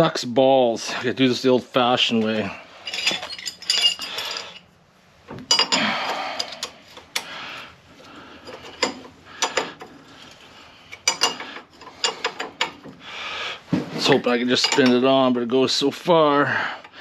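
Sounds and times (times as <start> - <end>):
wrench clinking on metal: 2.8 - 4.7, 5.5 - 7.3, 10.9 - 12.9, 14.5 - 15.1.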